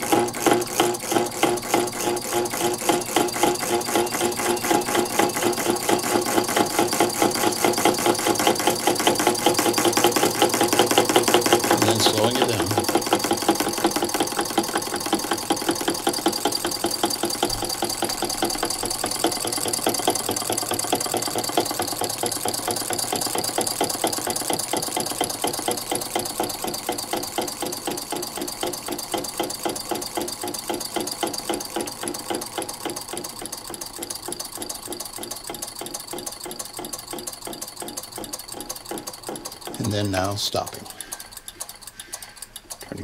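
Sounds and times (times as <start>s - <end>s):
solenoid engine clattering: 0.0s - 43.0s.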